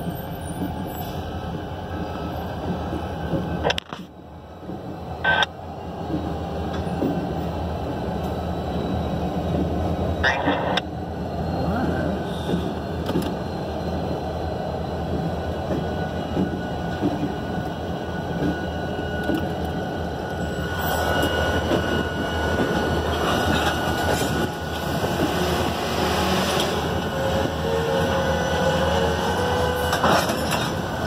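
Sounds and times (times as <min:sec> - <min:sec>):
locomotive engine drone: 0:00.0 - 0:31.0
wheels rumbling on rail: 0:00.0 - 0:31.0.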